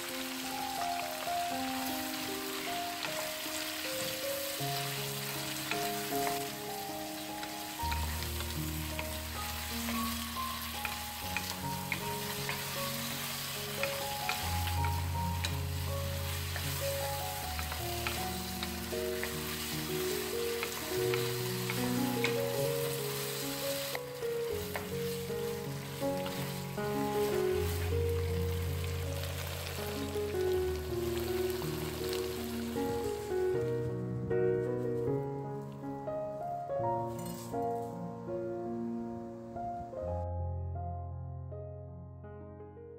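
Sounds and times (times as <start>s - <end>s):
food sizzling in a frying pan: 0.0s - 34.0s.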